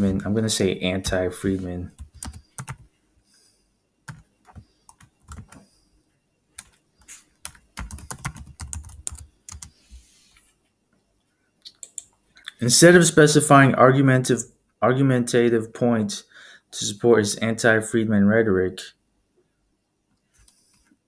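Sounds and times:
typing on computer keyboard: 2.0s - 2.8s, 4.1s - 5.6s, 7.4s - 9.7s.

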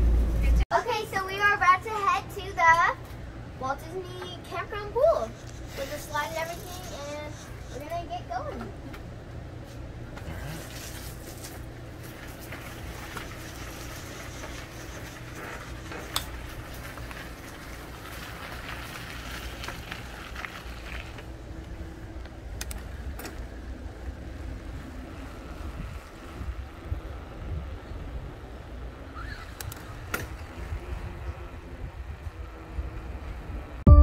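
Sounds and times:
bicycle tyre rumble on pavement: 9.7s - 33.8s
wind on microphone: 24.6s - 33.8s.

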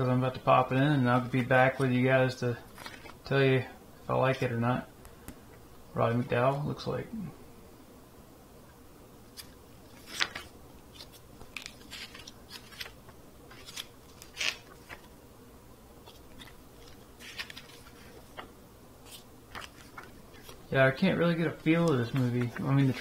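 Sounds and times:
glossy paper pages turning: 2.7s - 3.2s, 9.3s - 15.1s, 16.0s - 23.0s.

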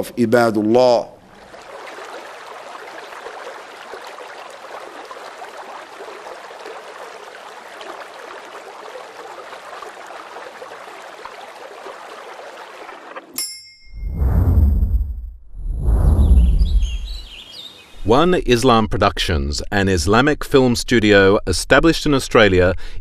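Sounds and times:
stream water rushing: 1.2s - 13.4s.

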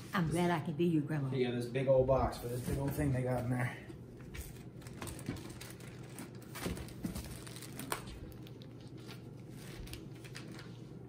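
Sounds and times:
packaging rustling and crinkling: 4.2s - 11.0s.

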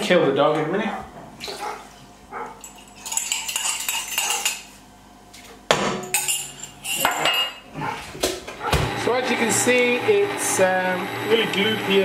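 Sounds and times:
metal utensil clinking on dishes: 2.6s - 4.7s, 6.0s - 7.6s.

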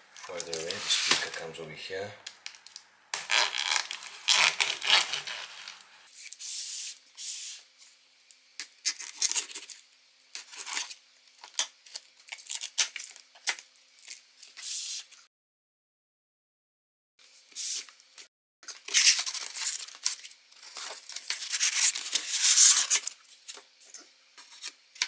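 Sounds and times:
cardboard scraping: 0.2s - 1.5s, 3.2s - 5.9s
knife slicing packing tape: 3.2s - 6.4s, 18.8s - 20.2s, 21.2s - 23.2s.

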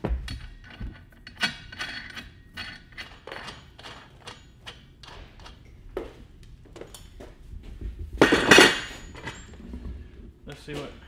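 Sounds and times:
metal parts clanking: 0.2s - 5.6s, 8.2s - 9.6s.

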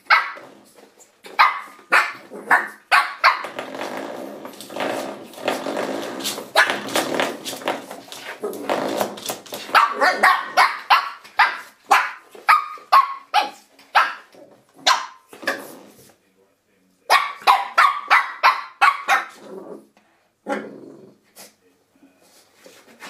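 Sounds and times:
puppy yapping barks: 0.0s - 0.4s, 1.3s - 3.5s, 9.7s - 15.3s, 17.1s - 19.4s
puppy growling: 19.3s - 21.2s.

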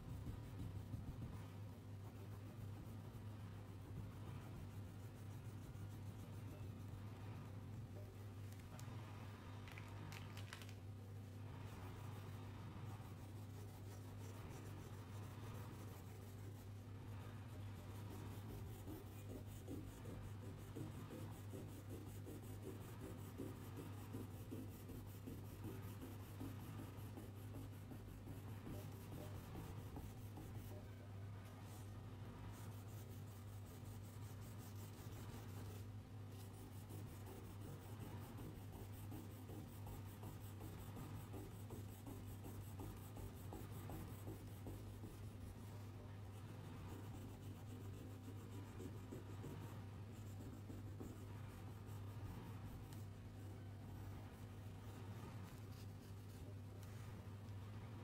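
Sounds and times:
pencil scratching on paper: 0.0s - 6.9s, 17.5s - 30.8s, 32.5s - 45.8s, 46.4s - 53.0s.

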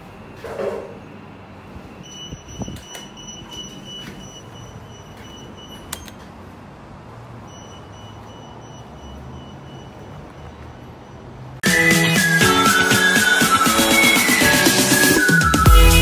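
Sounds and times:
low rumble of road traffic: 0.0s - 11.6s.

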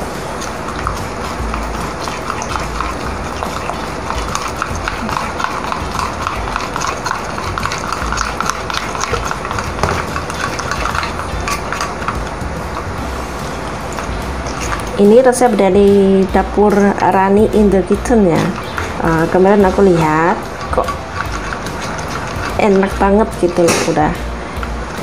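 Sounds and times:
metal spoon stirring in bowl: 0.0s - 25.0s.

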